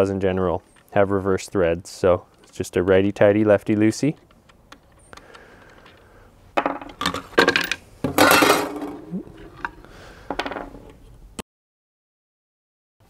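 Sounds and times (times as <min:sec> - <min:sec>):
metal clatter: 0:06.6 - 0:09.7
metal parts knocking on wood: 0:06.6 - 0:10.9.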